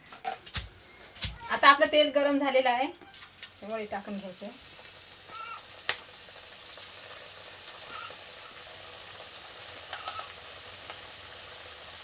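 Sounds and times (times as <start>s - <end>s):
fritters deep-frying in oil: 2.4s - 12.0s
oil crackles and pops: 3.0s - 12.0s.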